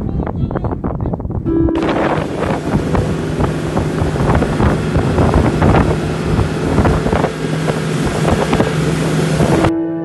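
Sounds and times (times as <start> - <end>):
wind buffeting microphone: 0.0 - 9.7
motorboat engine humming: 1.4 - 10.0
water splashing along hull: 1.8 - 9.7.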